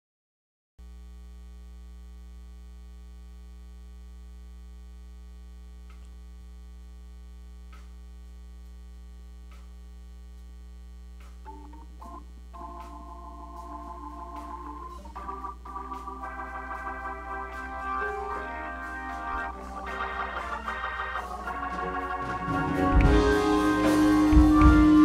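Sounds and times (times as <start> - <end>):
low electrical hum: 0.8 - 25.0
faint ticks: 5.8 - 6.2.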